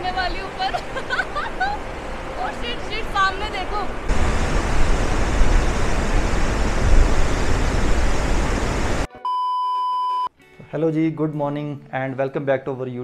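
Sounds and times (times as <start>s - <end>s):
river rushing: 0.0s - 9.1s
wind buffeting microphone: 4.1s - 9.1s
test-tone beep: 9.2s - 10.3s.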